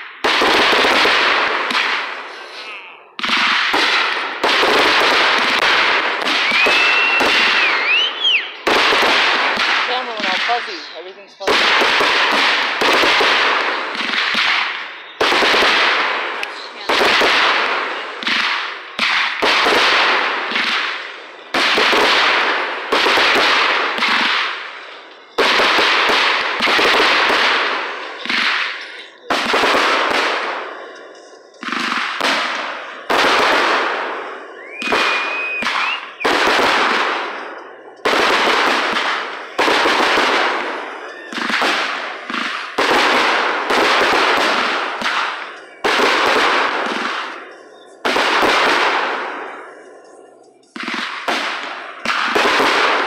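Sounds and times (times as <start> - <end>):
fireworks bursting: 0.0 - 53.0
firework whistle: 6.2 - 8.6, 34.3 - 37.0.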